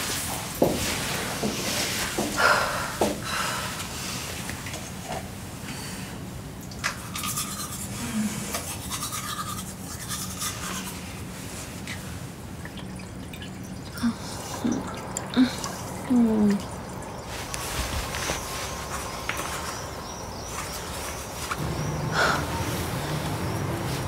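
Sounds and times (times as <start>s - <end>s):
toothbrush scrubbing teeth: 6.8s - 11.0s.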